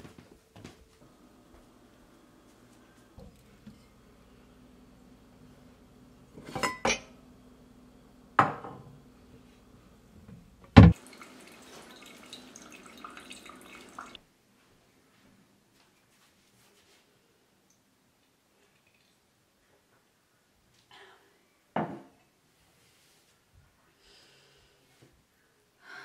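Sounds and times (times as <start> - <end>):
dishes clinking: 6.4 - 7.2
liquid being poured: 11.0 - 14.2.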